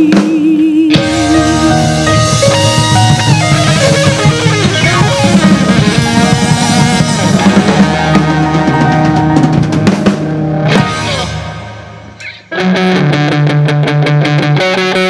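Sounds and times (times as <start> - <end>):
bass guitar: 0.0 - 15.0
drums: 0.0 - 15.0
keyboard: 0.9 - 12.6
electric guitar lead melody: 0.9 - 15.0.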